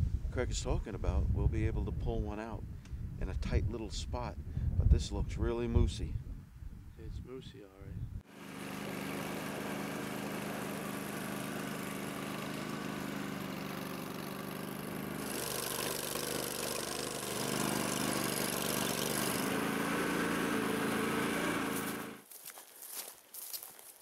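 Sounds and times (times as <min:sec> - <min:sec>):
vehicle engine running: 0:08.3 - 0:22.2.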